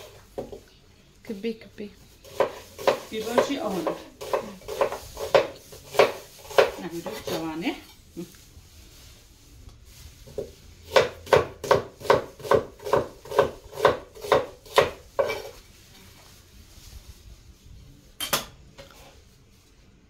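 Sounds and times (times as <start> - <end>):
knife chopping on wooden board: 2.3 - 7.4, 10.4 - 15.5.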